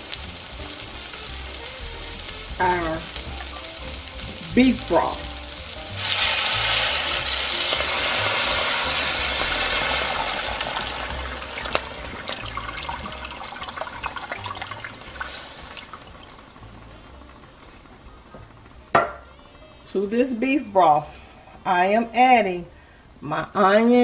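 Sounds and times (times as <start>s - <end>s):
liquid hissing in hot pan: 0.0s - 16.3s.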